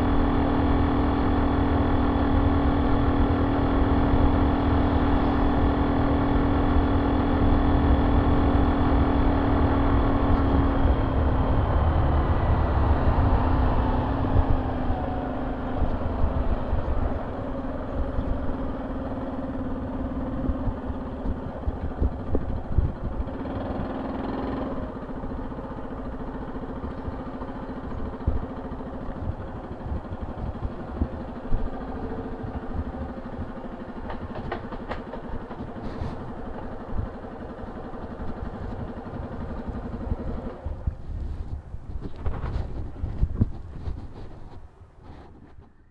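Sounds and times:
motorcycle engine: 0.0s - 45.9s
wind on microphone: 38.3s - 45.9s.

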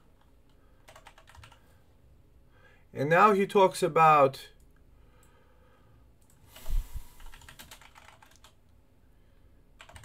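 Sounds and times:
keyboard typing clicks: 0.9s - 1.6s, 7.2s - 8.6s, 9.8s - 10.0s.

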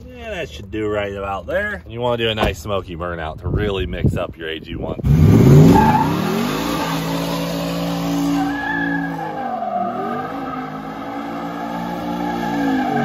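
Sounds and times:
engine revving hard: 5.0s - 13.0s
tyres squealing on asphalt: 5.2s - 13.0s.

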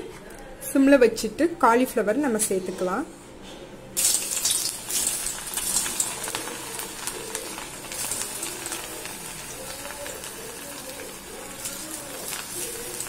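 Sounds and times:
food deep-frying in hot oil: 4.0s - 13.0s.

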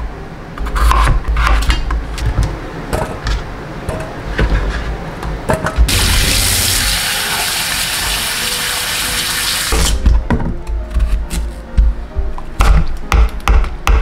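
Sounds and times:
potatoes rinsed by hand: 5.9s - 10.0s.

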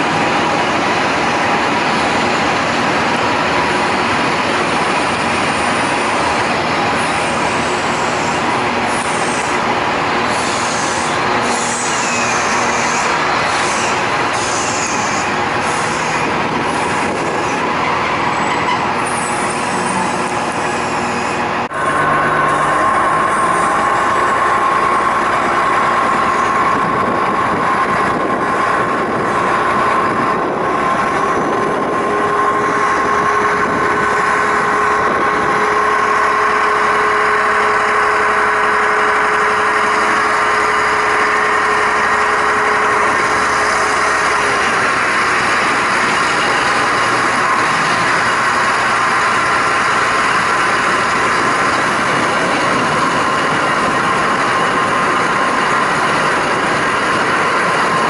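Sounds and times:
diesel railcar running on track: 0.0s - 58.0s
low whine: 20.2s - 48.0s.

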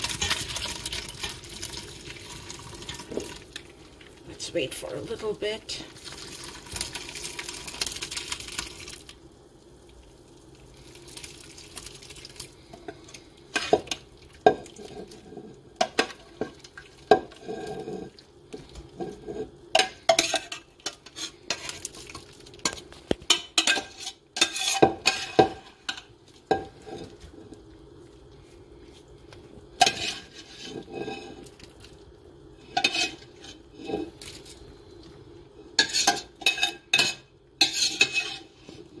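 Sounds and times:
liquid pouring and splashing: 0.0s - 4.2s, 5.8s - 12.7s
metal spoon scraping pot: 17.1s - 18.1s, 19.0s - 21.8s, 22.6s - 27.2s, 29.8s - 31.5s, 32.7s - 34.2s, 35.8s - 39.0s.

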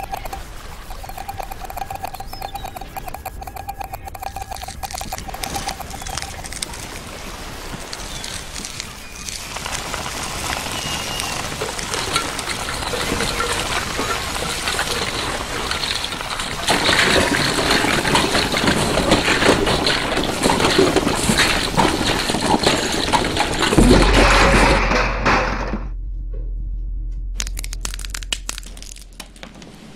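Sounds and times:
low steady hum: 0.0s - 7.0s, 23.8s - 29.9s
dense crackling and rustling: 0.0s - 29.9s.

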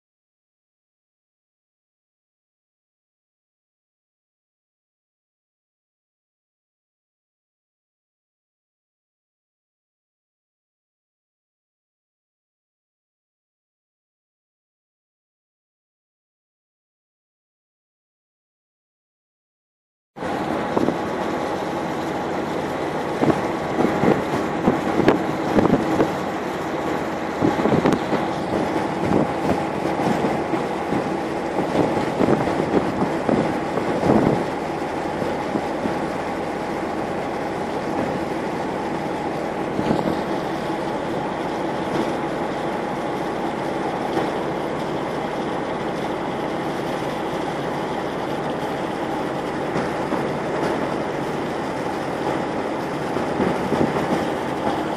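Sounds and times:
boat engine humming: 20.2s - 54.9s
water: 20.2s - 54.9s
wind: 20.2s - 54.9s.

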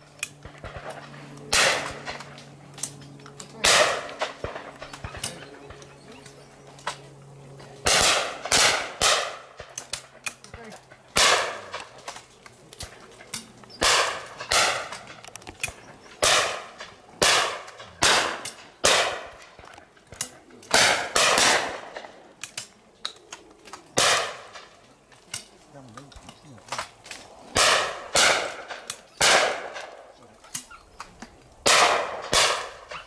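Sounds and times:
shotgun shots: 0.4s - 2.3s, 3.6s - 5.4s, 7.8s - 10.6s, 11.2s - 12.0s, 13.8s - 15.1s, 16.2s - 19.4s, 20.7s - 22.2s, 24.0s - 24.7s, 27.5s - 30.1s, 31.6s - 33.0s.

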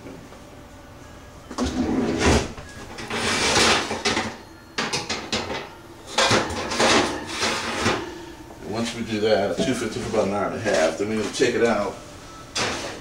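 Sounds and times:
metal oven rack knocks and scraping: 2.4s - 8.1s.

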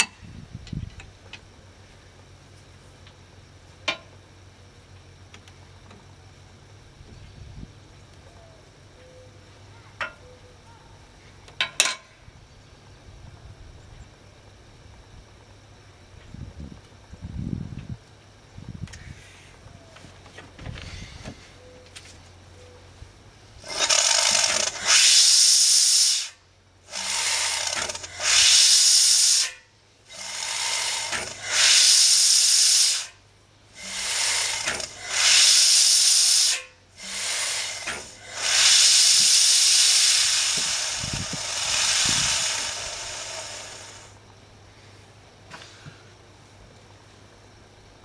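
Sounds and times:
steam engine hissing puffs: 23.6s - 44.2s.

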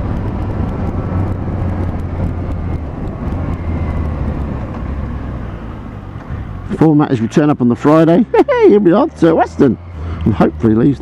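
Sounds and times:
wind rush: 0.0s - 6.8s.

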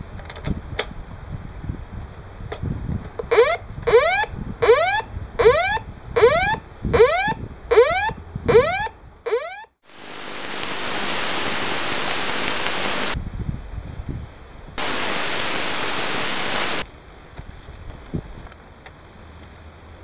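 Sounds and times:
long steady hisses: 9.8s - 13.2s, 14.8s - 16.8s.

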